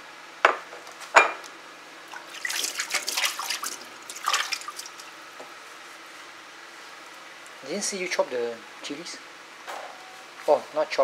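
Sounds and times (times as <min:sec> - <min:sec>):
tap water splashing on hands: 0:02.2 - 0:05.1.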